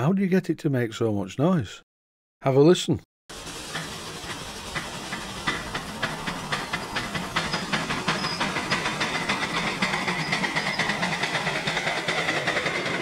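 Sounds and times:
model steam locomotive exhaust beat: 3.3s - 13.0s.

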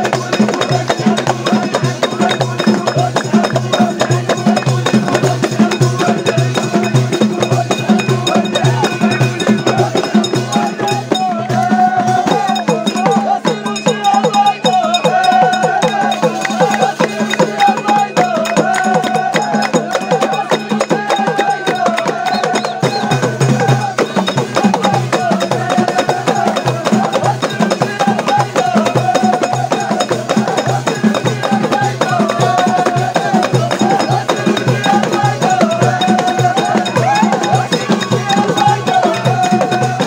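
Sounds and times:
hand-clapping: 0.0s - 7.6s, 16.2s - 25.3s
percussion: 0.0s - 40.0s.

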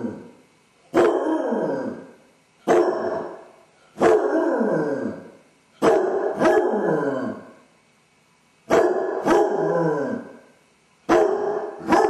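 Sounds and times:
dog baying and howling: 0.9s - 2.0s, 2.7s - 3.4s, 4.0s - 7.5s, 8.7s - 10.4s, 11.1s - 12.0s.

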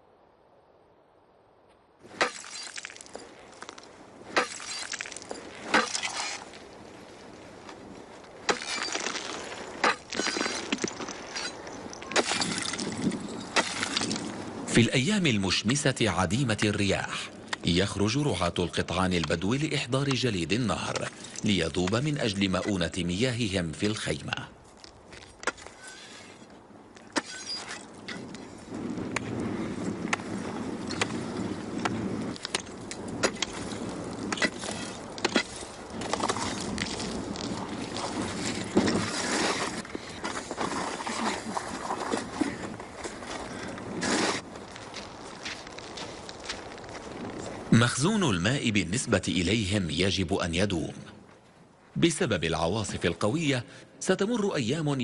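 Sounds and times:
ice cracking under strikes: 2.1s - 6.8s, 7.7s - 14.5s, 24.7s - 28.3s, 31.8s - 44.6s
ice pieces clinking: 2.2s - 6.6s, 8.5s - 14.4s.

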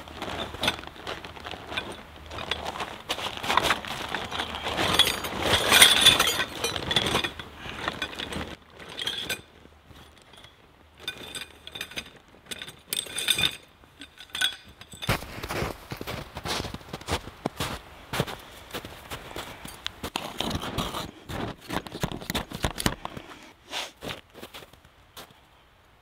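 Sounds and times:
canvas fabric dragging over snow: 0.0s - 10.1s, 15.1s - 22.2s
metallic clinks of tent hardware: 3.5s - 15.3s.

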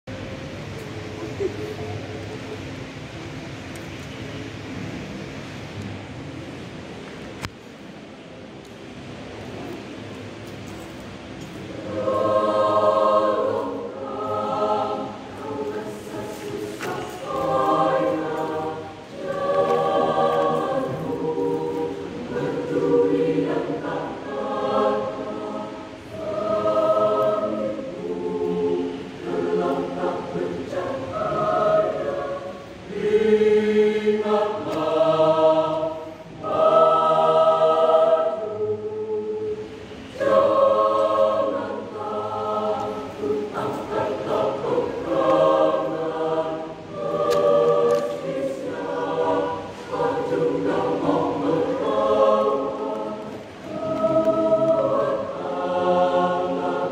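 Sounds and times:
choir singing: 11.5s - 56.9s.

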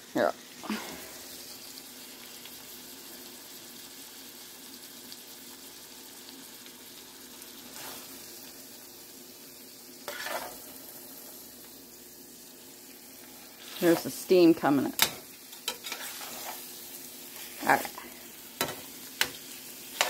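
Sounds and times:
meat sizzling in skillet: 0.0s - 20.0s.

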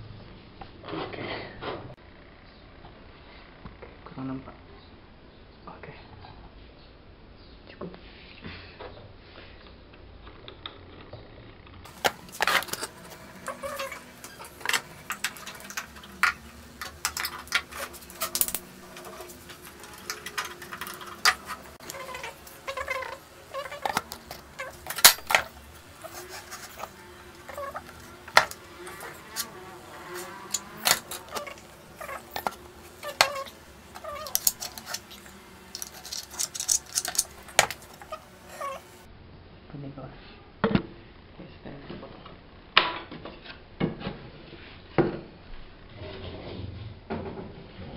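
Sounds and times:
wood pieces and tools clattering: 11.9s - 38.8s.

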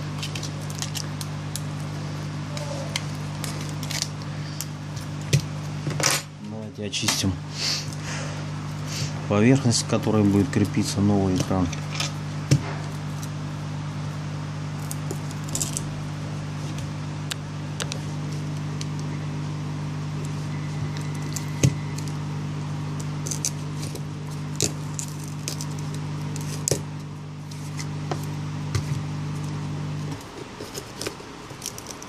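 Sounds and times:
low electrical hum: 0.0s - 32.0s
clicks and scrapes of glass crumbs: 14.8s - 15.9s, 23.0s - 28.3s, 30.1s - 32.0s.

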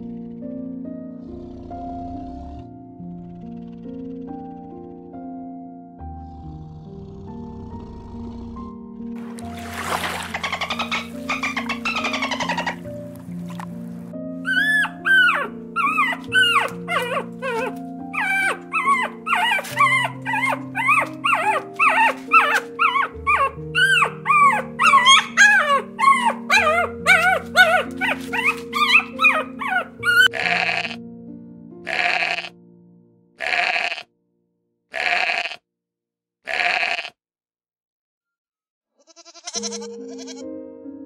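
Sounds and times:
background music: 0.0s - 34.0s, 39.6s - 41.0s
high animal calls bending in pitch: 10.2s - 12.9s, 14.5s - 31.0s, 31.9s - 32.5s, 36.5s - 37.1s
animal bleats: 30.2s - 31.0s, 31.8s - 32.6s, 33.4s - 34.1s, 34.9s - 35.6s, 36.4s - 37.2s, 39.0s - 40.5s.

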